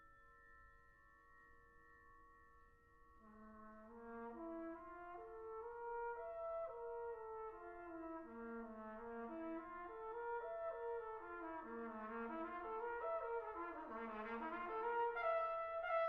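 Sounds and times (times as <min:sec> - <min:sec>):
brass band sustained notes: 0:03.9 - 0:16.0.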